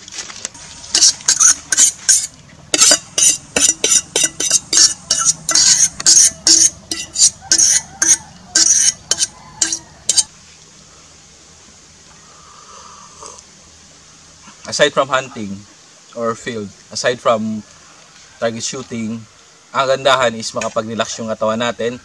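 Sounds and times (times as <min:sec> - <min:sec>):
metal utensil scraping a pot: 0:00.6 - 0:10.3.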